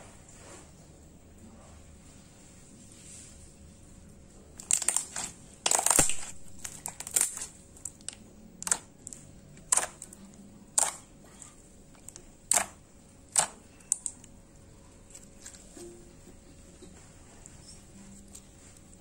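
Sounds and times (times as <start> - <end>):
slime squelching: 4.5 - 15.8.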